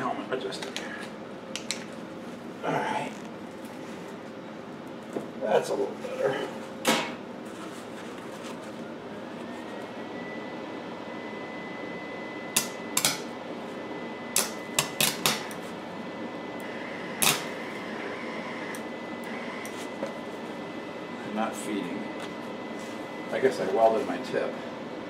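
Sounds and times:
steady high whine: 0.0s - 25.0s
welder arc crackling: 12.5s - 13.3s, 16.6s - 17.8s.

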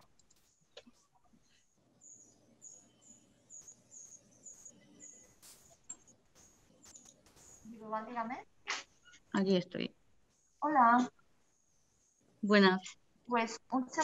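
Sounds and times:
faint high chirps: 0.0s - 9.4s.

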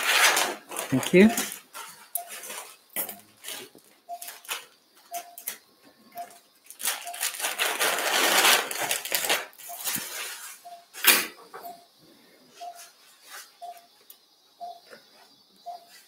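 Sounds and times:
patient monitor beeping: 0.8s - 7.9s, 9.6s - 16.0s
loud hissing noise: 9.4s - 13.6s.

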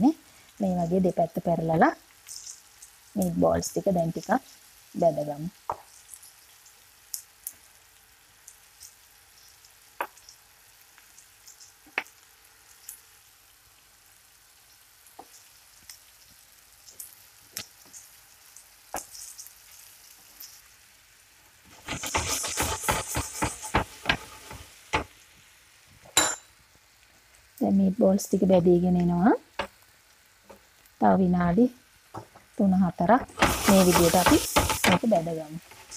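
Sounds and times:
meatballs sizzling in oil: 0.0s - 35.9s
metal spoon turning food: 2.2s - 3.0s, 21.7s - 25.1s, 33.2s - 35.9s.

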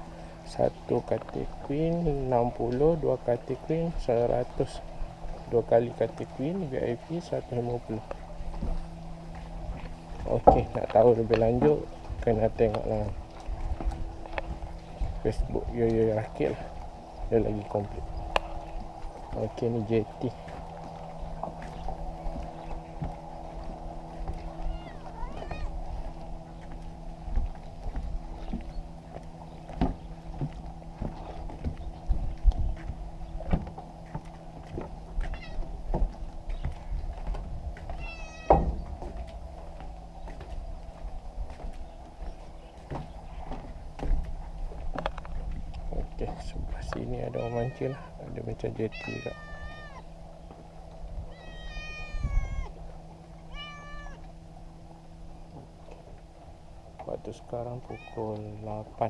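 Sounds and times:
steady low hum: 0.0s - 59.0s
footsteps on wooden planks: 0.2s - 54.8s
cat meowing: 24.7s - 25.8s, 35.3s - 35.6s, 38.0s - 38.6s, 47.3s - 48.1s, 48.9s - 50.1s, 51.3s - 52.7s, 53.5s - 54.2s, 57.8s - 58.2s.

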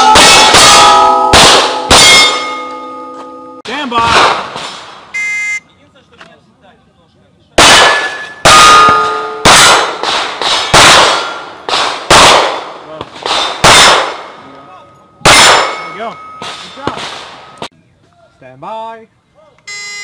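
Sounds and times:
pistol shots: 0.0s - 2.6s, 4.0s - 5.0s, 7.6s - 14.4s, 15.2s - 17.5s
steel plates ringing: 0.0s - 3.7s, 8.0s - 9.7s, 15.1s - 16.8s.

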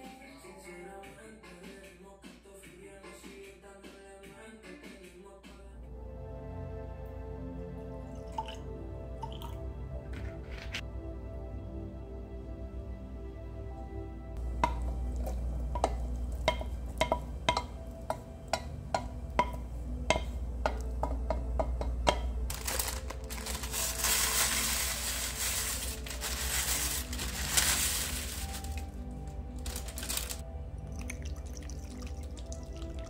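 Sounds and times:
utensil clinking against glass bowl: 14.6s - 22.4s
food tumbling into bowl: 29.6s - 30.4s.

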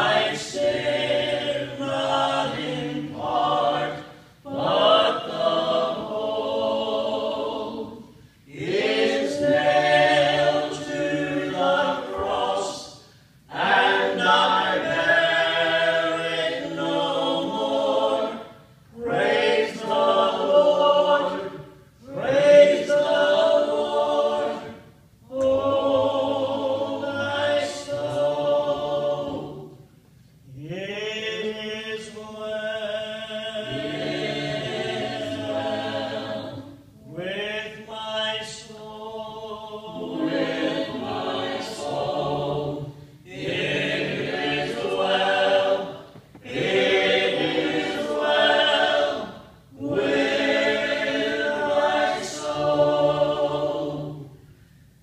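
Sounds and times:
group singing in harmony: 0.0s - 54.8s.

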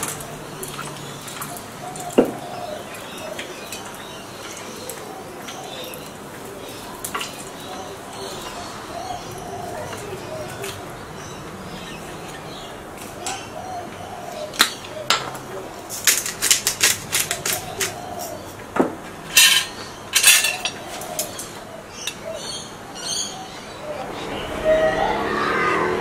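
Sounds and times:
cutlery clinking on a plate: 19.3s - 21.5s.

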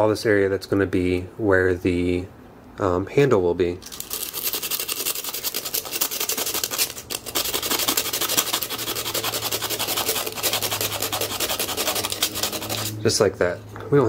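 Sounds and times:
sandpaper rubbing on metal: 4.1s - 13.0s.

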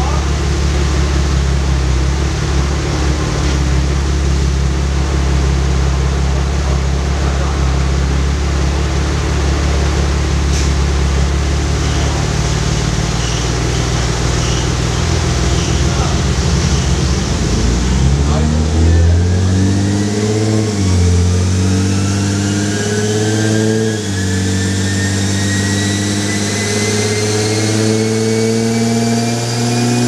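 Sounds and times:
car engine idling: 0.0s - 22.3s.

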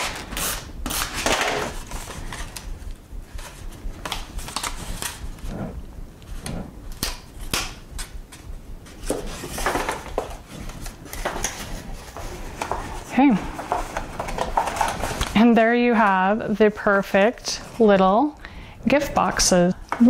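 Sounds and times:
paper rustling and crinkling: 9.0s - 15.5s.

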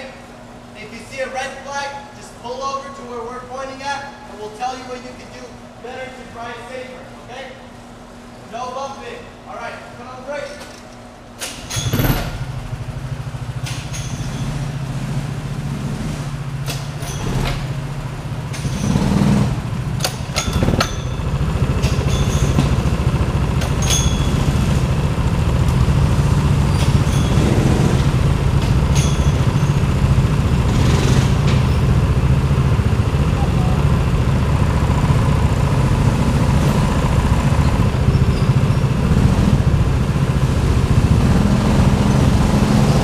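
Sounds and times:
go-kart engines idling: 11.4s - 43.0s.

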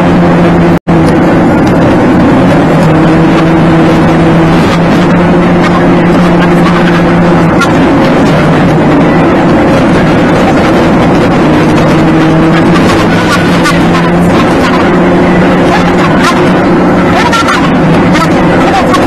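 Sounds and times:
car engine hum: 0.0s - 19.0s
road noise inside car: 0.0s - 19.0s.

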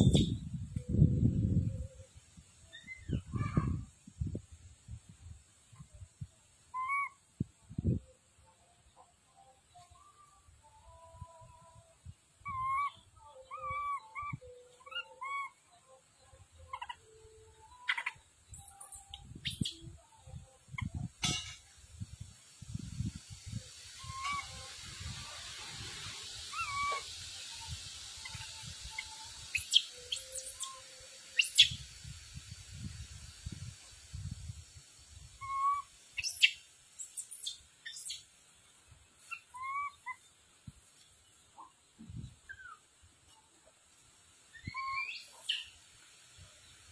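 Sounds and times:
high chirps: 0.0s - 3.5s, 17.7s - 20.0s, 23.5s - 32.1s, 35.2s - 38.3s, 39.2s - 40.3s, 44.5s - 45.8s
whistled animal calls: 6.7s - 7.2s, 12.4s - 15.7s, 24.0s - 24.7s, 26.4s - 31.8s, 35.4s - 38.2s, 39.3s - 40.2s, 44.5s - 45.8s
rustles and clicks of palm fronds: 20.9s - 35.4s, 36.2s - 44.5s
monkey distress cries: 26.5s - 27.1s.

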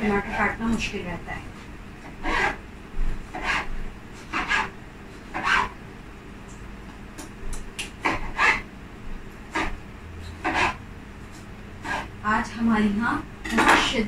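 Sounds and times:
knife sawing through tomato: 2.2s - 2.6s, 3.4s - 3.7s, 4.3s - 4.7s, 5.3s - 5.7s, 8.0s - 8.6s, 10.4s - 10.8s, 11.8s - 12.1s.

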